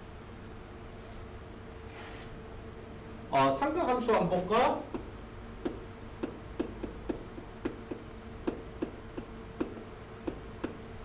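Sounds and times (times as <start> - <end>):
faint steady hum: 0.0 - 11.0
chalk tapping on a chalkboard: 4.9 - 10.8.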